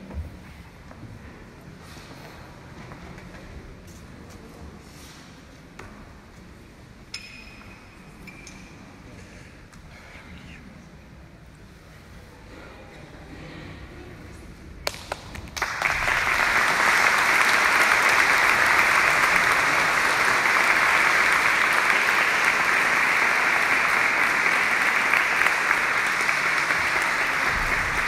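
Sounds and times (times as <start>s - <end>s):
audience applauding: 14.9s - 28.0s.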